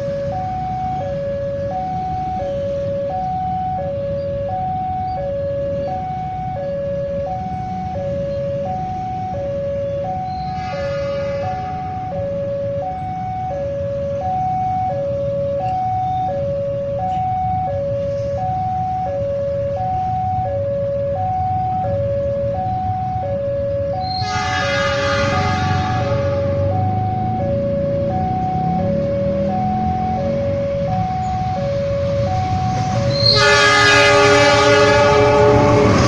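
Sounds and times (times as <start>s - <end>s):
engines idling rumble: 0.0s - 24.4s, 25.0s - 35.8s
two-tone crossing alarm: 0.0s - 36.0s
brief vehicle horn: 24.1s - 26.4s, 33.1s - 36.0s.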